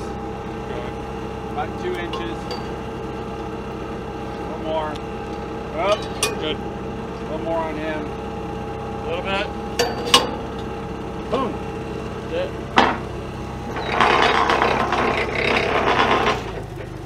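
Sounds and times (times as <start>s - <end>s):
steady engine hum: 0.0s - 17.0s
sharp metallic clanks: 1.7s - 3.0s, 5.8s - 6.6s, 9.7s - 10.8s
rough noisy rush: 9.8s - 16.7s.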